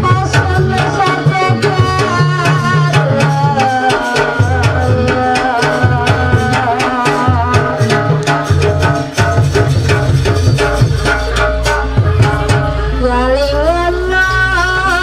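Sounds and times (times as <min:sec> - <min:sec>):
hand drum rapid strokes: 0:00.0 - 0:12.8.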